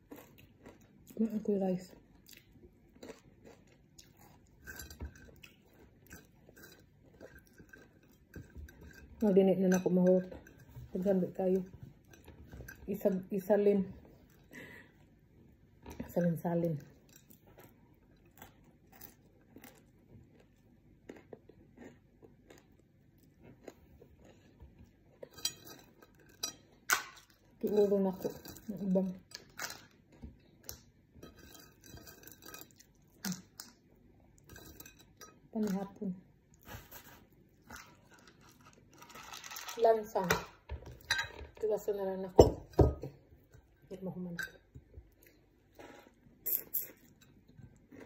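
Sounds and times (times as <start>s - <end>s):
crunchy chewing: 1.8s - 8.9s, 17.2s - 26.4s.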